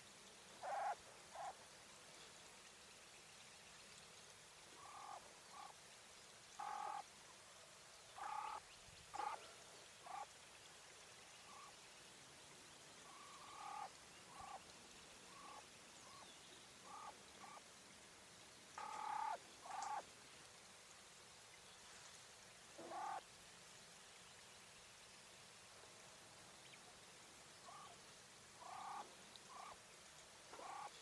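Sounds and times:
quail soft call notes: 0.6s - 1.6s, 4.8s - 5.7s, 6.6s - 7.0s, 8.2s - 9.4s, 10.0s - 10.3s, 13.1s - 14.6s, 15.3s - 16.2s, 16.9s - 17.6s, 18.8s - 20.0s, 22.8s - 23.2s, 27.6s - 28.0s, 28.6s - 29.8s, 30.5s - 31.0s.

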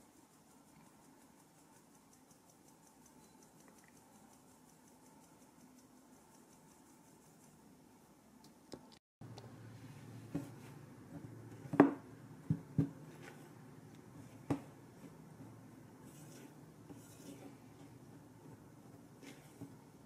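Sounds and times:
spatula scraping in glass bowl: 16.0s - 17.9s.

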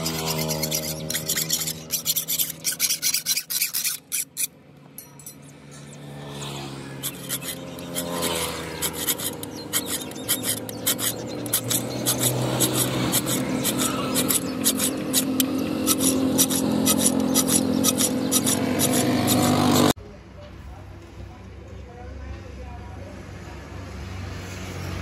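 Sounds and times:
steel tool rasping sickle blade: 0.0s - 20.0s.

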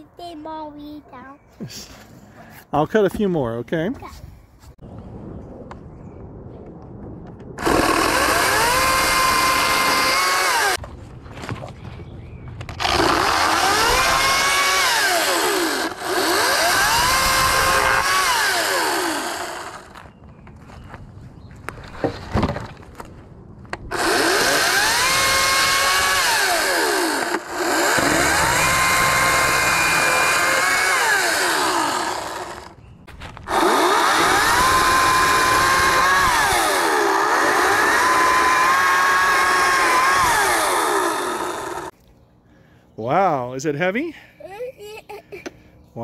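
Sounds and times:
electric chainsaw cutting branch: 7.6s - 10.8s, 12.7s - 20.0s, 23.9s - 32.8s, 33.4s - 41.9s.

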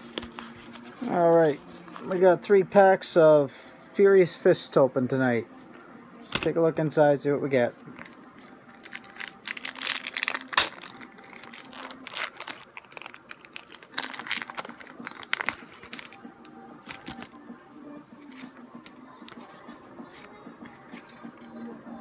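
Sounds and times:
foil wrapper crinkling and tearing: 8.0s - 16.2s.

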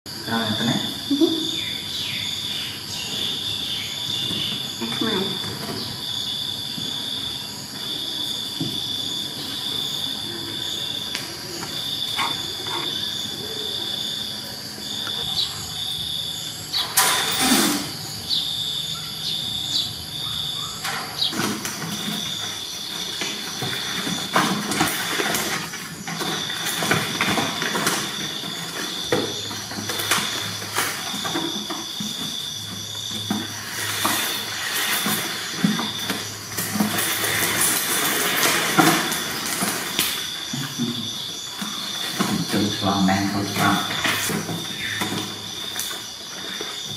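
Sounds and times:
kittens scuffling: 21.3s - 46.9s.

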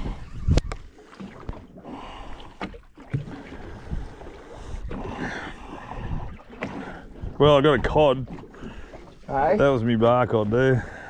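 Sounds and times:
water noise: 0.0s - 11.0s
wind: 0.0s - 11.0s.

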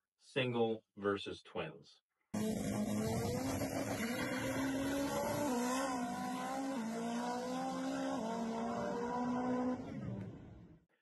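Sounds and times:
drag car engine at full throttle: 2.4s - 10.8s.

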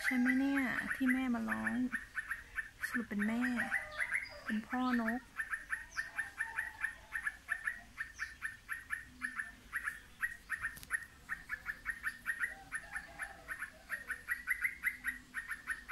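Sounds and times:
small bird chirping rapidly: 0.0s - 15.9s.

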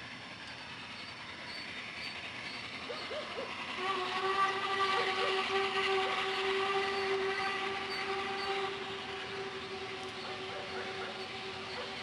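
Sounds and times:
rushing train noise: 0.0s - 12.0s
steam locomotive whistle: 2.9s - 12.0s.

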